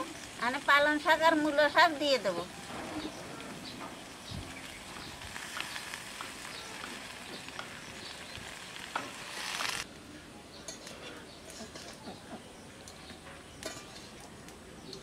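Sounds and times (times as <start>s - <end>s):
vegetables sizzling in hot fat: 0.0s - 9.9s
quiet outdoor ambience: 0.0s - 15.0s.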